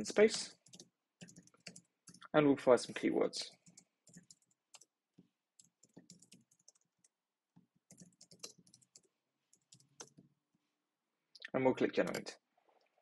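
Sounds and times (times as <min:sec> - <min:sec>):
typing on keyboard: 0:00.3 - 0:02.3, 0:03.6 - 0:05.0, 0:05.6 - 0:10.3, 0:12.0 - 0:12.3.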